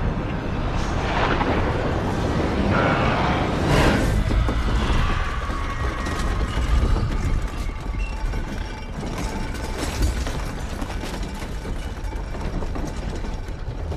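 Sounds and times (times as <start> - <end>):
deep low rumble: 0.0 - 8.9.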